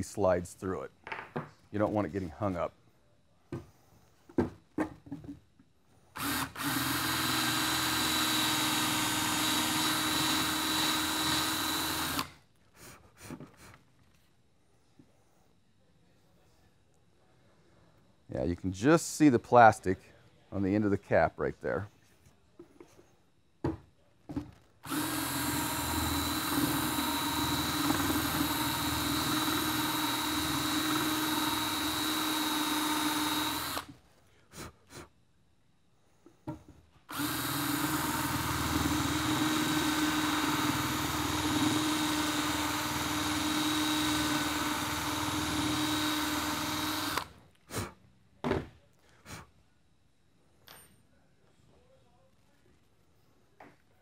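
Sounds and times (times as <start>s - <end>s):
cordless drill whining: 6.2s - 12.4s, 24.8s - 33.9s, 37.1s - 47.4s.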